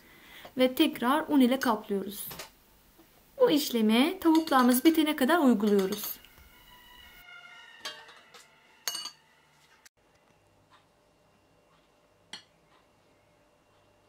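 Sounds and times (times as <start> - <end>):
metal tongs clinking on dishes: 4.3 - 5.0, 5.6 - 6.3, 7.8 - 9.2.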